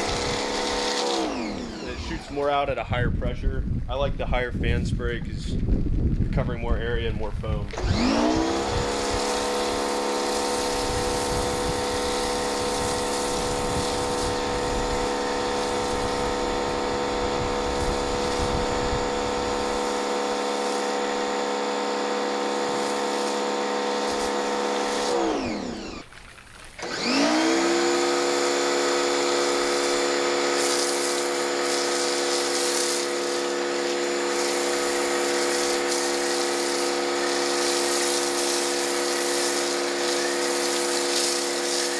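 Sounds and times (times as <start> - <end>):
pressure washer motor hum: 0.0 - 2.7, 7.6 - 41.9
spray hissing: 9.0 - 16.7, 19.5 - 21.6, 22.3 - 25.3, 28.2 - 41.9.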